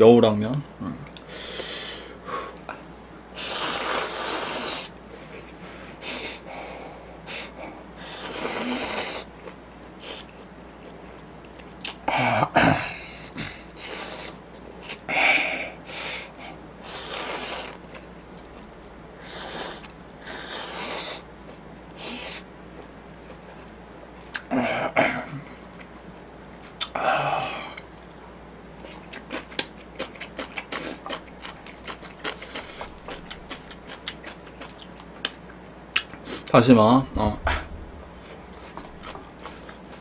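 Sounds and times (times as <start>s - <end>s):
person slurping noodles: 3.4s - 4.9s, 8.0s - 9.3s, 16.8s - 17.8s, 19.2s - 21.2s.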